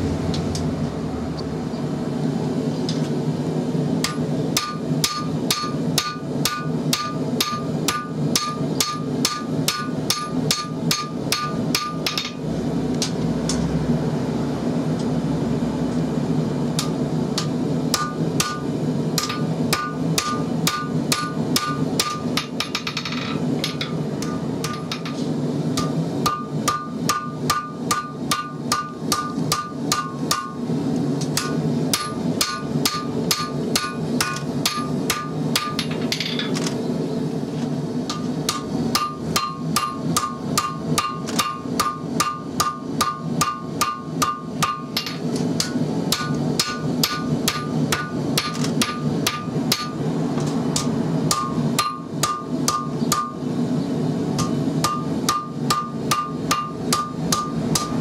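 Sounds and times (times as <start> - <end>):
steady low hum: 0.0 - 58.0
hammer blows ringing on anvil: 4.0 - 12.4, 16.8 - 30.6, 31.4 - 36.5, 38.1 - 50.0, 50.8 - 53.4, 54.4 - 58.0.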